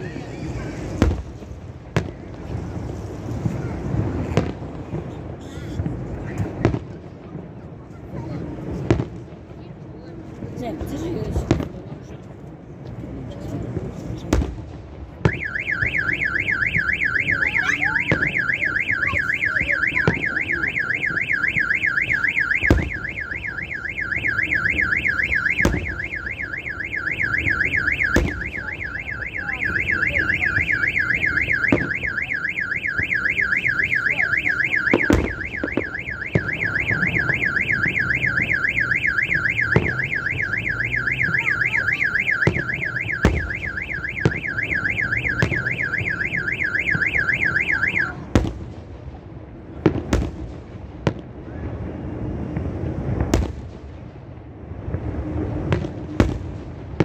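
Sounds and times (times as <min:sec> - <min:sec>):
fireworks bangs: 0:00.0 - 0:57.0
car alarm warbling: 0:15.3 - 0:48.2.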